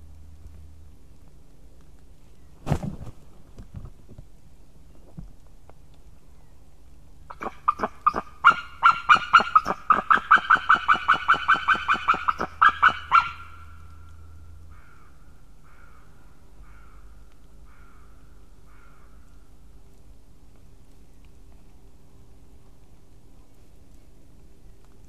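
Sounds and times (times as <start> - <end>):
eagle yelping calls: 7.3 - 13.8.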